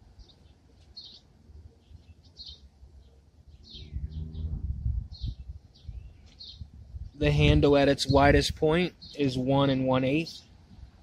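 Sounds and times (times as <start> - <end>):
small birds chirping: 0.0 - 7.2, 8.7 - 11.0
low rumble: 3.8 - 6.0.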